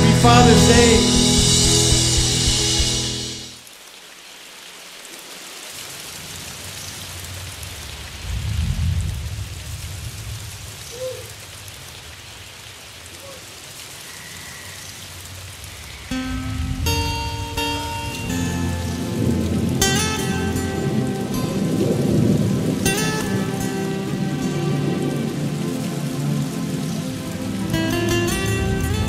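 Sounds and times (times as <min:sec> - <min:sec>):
thunder rumbling: 0:00.0 - 0:03.6
rain hissing: 0:00.0 - 0:29.0.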